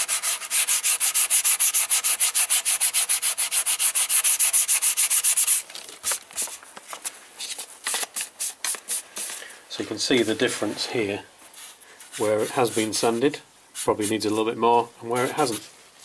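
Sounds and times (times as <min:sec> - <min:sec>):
sandpaper rubbing by hand: 0:00.0 - 0:05.6, 0:07.4 - 0:10.9, 0:11.5 - 0:13.2, 0:13.8 - 0:14.4.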